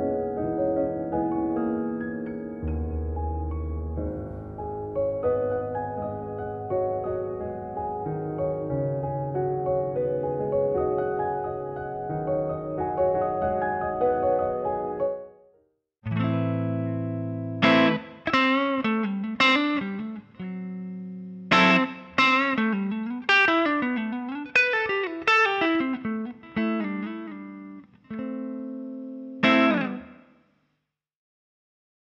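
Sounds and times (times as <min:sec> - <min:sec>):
overdriven electric guitar: 0:16.1 - 0:30.3.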